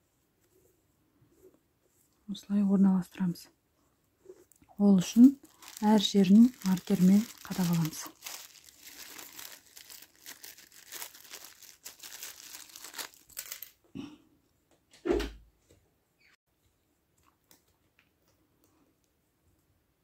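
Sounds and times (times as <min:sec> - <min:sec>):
bag pieces rustling and crinkling: 0:04.8 - 0:13.8.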